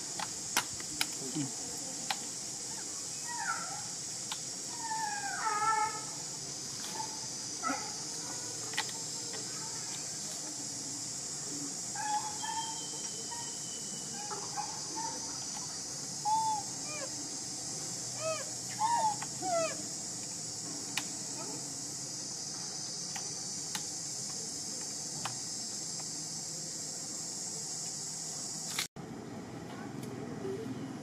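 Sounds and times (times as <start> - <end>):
high insect hiss: 0.0 - 30.8.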